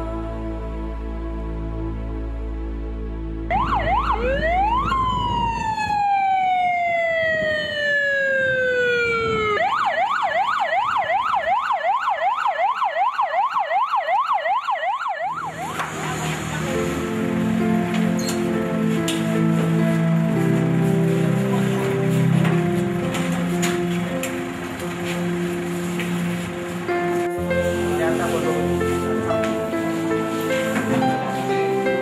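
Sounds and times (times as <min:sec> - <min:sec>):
music: 0:00.0 - 0:07.0, 0:15.3 - 0:32.0
ambulance siren: 0:03.5 - 0:32.0.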